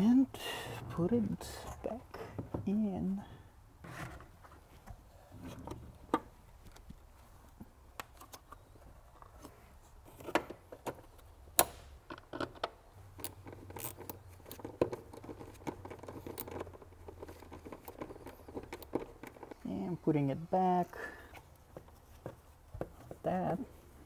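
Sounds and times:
plastic parts clicking and knocking: 10.1 - 19.6.

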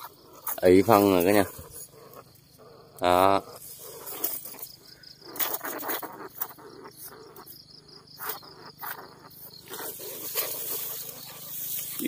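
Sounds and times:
insects chirping: 0.0 - 12.0
cage rustling through grass: 0.4 - 2.4, 8.2 - 12.0.

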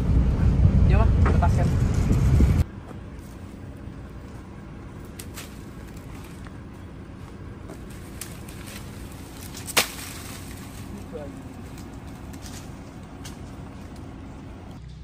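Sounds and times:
low steady rumble: 0.0 - 15.0
leaves and plastic sack crackling: 5.0 - 6.6, 7.6 - 14.1.

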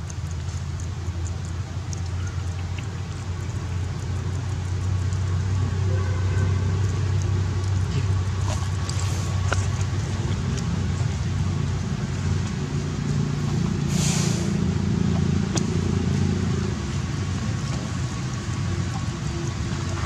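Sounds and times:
steady low rumble: 0.0 - 20.0
short hiss: 13.9 - 14.6.

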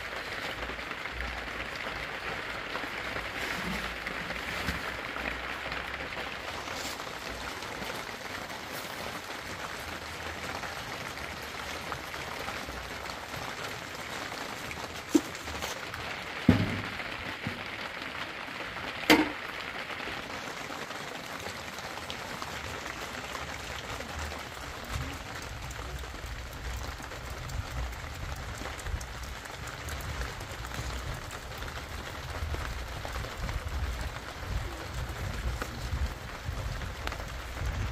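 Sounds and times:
rain pattering: 0.0 - 37.9
objects being handled knocks: 19.1 - 19.4
wind buffeting microphone: 32.2 - 37.9.

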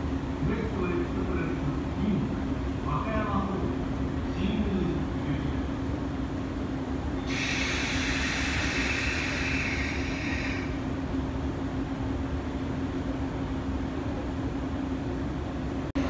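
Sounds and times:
electric train humming: 0.0 - 16.0
compressed air hissing: 7.3 - 10.7.

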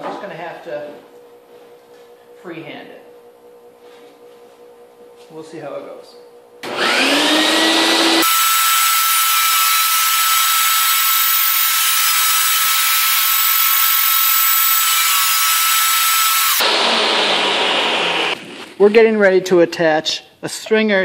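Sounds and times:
table saw cutting wood: 6.6 - 18.4.

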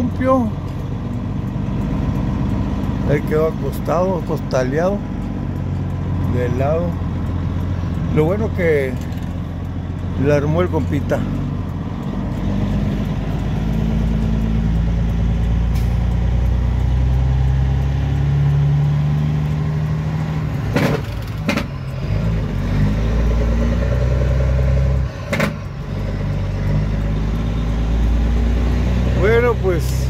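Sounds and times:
truck engine running: 0.0 - 30.0
sharp knocks: 20.7 - 21.7, 25.3 - 25.6.

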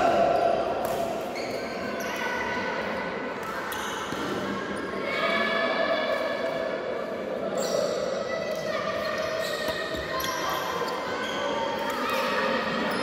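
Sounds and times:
reverberant hall background: 0.0 - 13.0.

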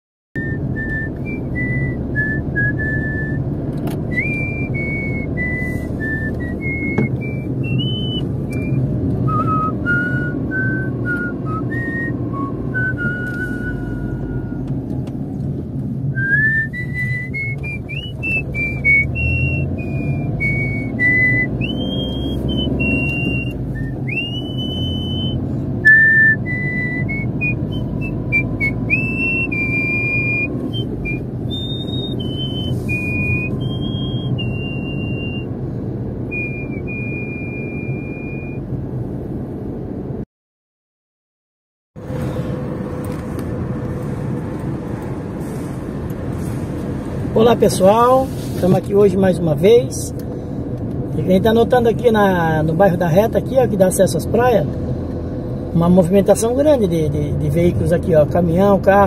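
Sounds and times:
person whistling a tune: 0.4 - 14.7, 16.1 - 35.6, 36.2 - 38.6
low rumble of moving car: 0.4 - 40.2, 42.0 - 59.0.

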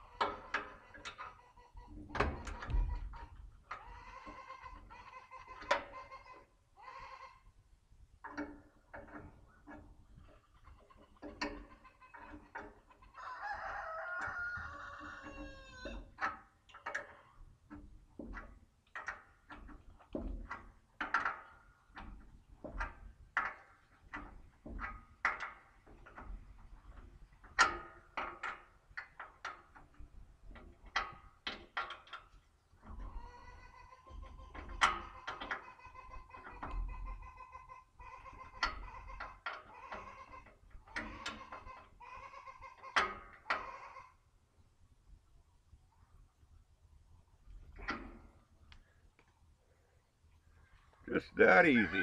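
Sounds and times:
rooster crowing: 13.2 - 15.9.

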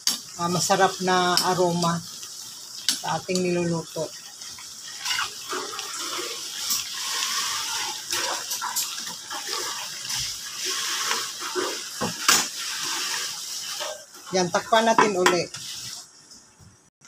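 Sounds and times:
sauce sloshing and bubbling: 4.3 - 12.0.

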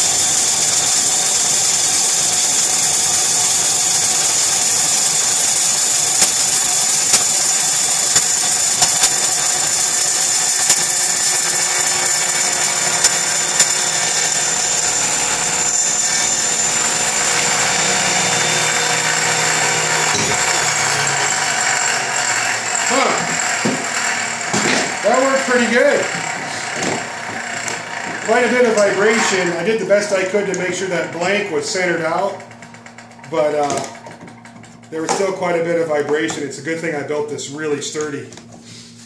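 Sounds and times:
electric drill running: 0.0 - 35.4
table saw cutting wood: 0.0 - 36.2
sharp ticks: 6.1 - 9.3.

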